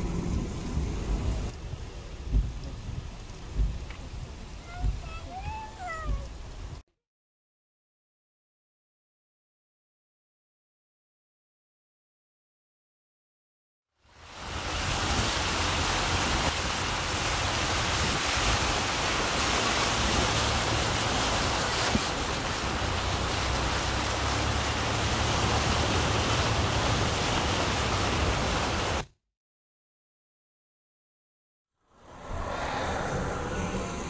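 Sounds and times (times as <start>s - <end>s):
low rumble: 0.0s - 4.4s, 31.9s - 34.0s
tyre spraying through floodwater: 0.0s - 6.7s, 14.1s - 29.0s.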